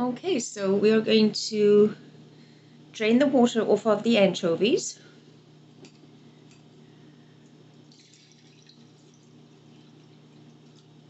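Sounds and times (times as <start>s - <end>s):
water dripping and trickling: 7.9s - 10.9s.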